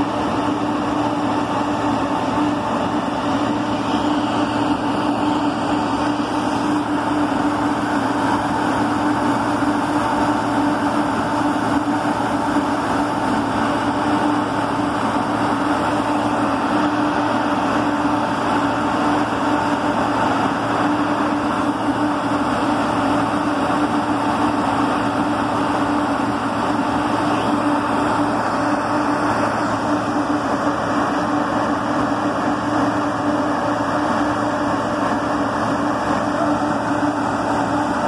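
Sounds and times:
drill rig machinery droning: 0.0 - 38.0.

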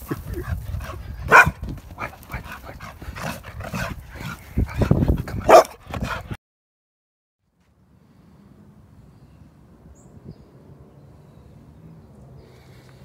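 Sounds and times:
dog barking: 1.3 - 2.5, 5.4 - 6.3
dog yipping: 5.5 - 5.8.

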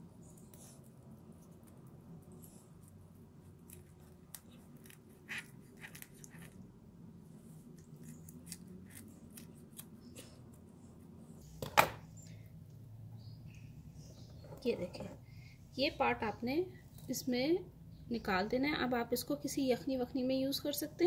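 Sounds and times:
scissors snipping bone: 3.5 - 6.6, 7.8 - 10.4.

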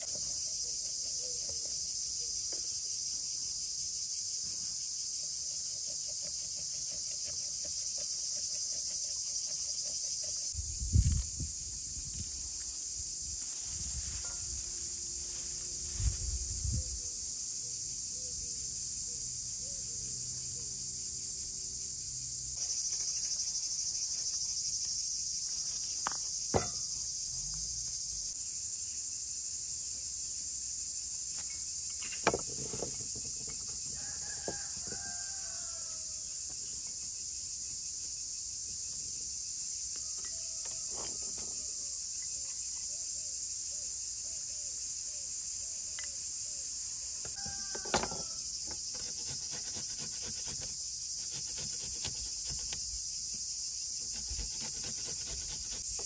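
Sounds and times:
crickets chirping: 0.0 - 56.0
sharp knocks: 26.5 - 26.8.

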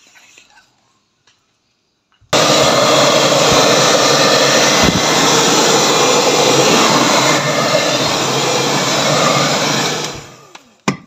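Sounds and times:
hot-air blower rushing air: 2.4 - 10.6.

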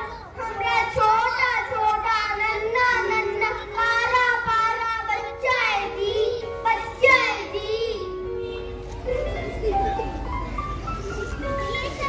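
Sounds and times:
children singing: 0.0 - 8.0
instrumental backing music: 0.0 - 12.0.

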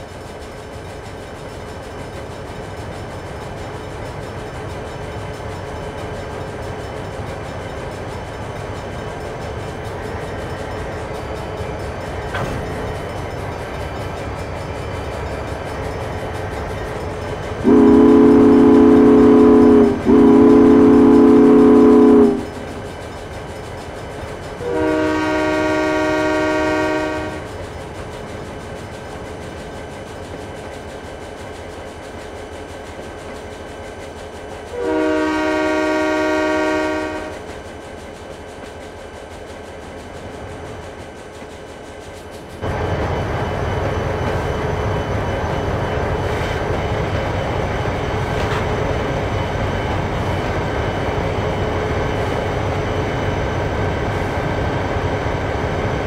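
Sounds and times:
train rumbling: 0.0 - 56.0
train horn blasts: 17.6 - 22.8, 24.6 - 27.5, 34.7 - 37.5.

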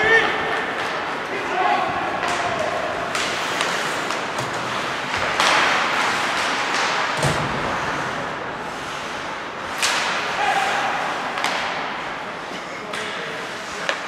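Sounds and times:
skates hissing on ice: 3.2 - 11.4.

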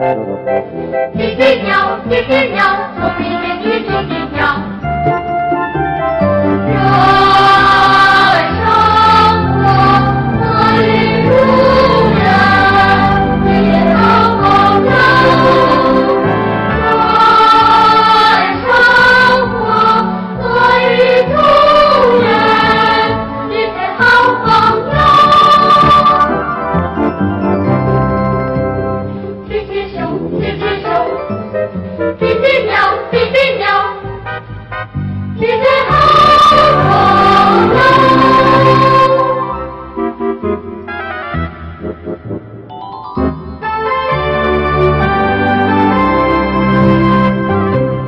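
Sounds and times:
instrumental backing music: 0.0 - 48.0
voices singing together: 1.2 - 4.8, 6.7 - 26.5, 29.5 - 31.2, 32.2 - 34.1, 35.4 - 39.8.

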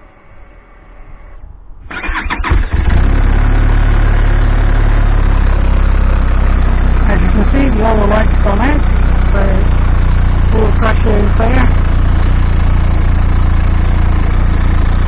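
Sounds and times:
electric starter cranking engine: 1.9 - 5.4
motorcycle engine idling: 2.0 - 15.0.

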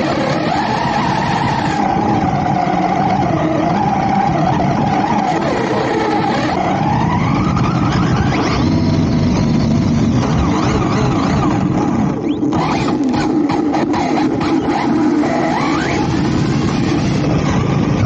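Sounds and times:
rc car electric motor whining: 0.0 - 17.9.

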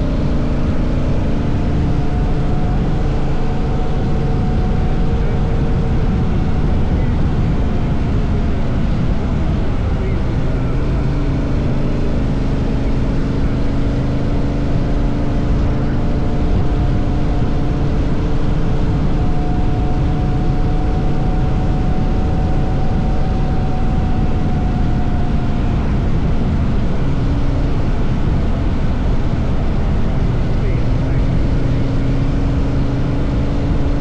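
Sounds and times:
motorcycle engine cruising: 0.0 - 34.0
wind and road noise: 0.0 - 34.0.

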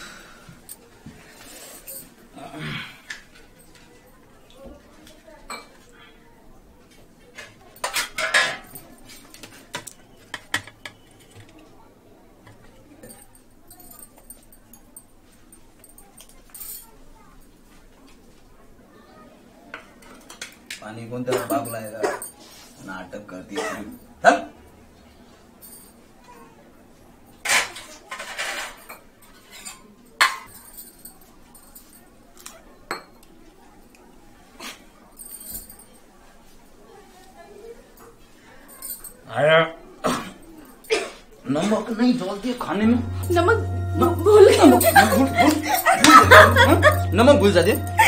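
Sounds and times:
dishes and glass clattering: 7.4 - 11.6, 27.4 - 30.8
dishes scraping: 9.8 - 11.6
steel plates and bowls clattering: 44.3 - 48.0.

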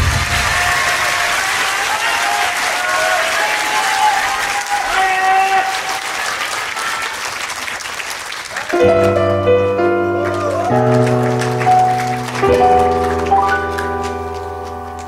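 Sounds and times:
audience applauding: 0.0 - 15.0
piano playing slow chords: 8.7 - 15.0.

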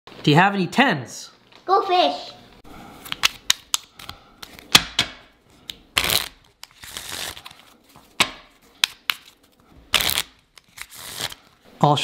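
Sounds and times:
playing cards being shuffled: 5.6 - 11.5.

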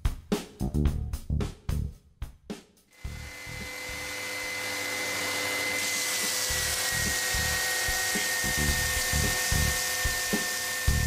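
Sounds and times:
belt sander motor whine: 3.0 - 11.0
wood sanding rasp: 3.1 - 11.0.

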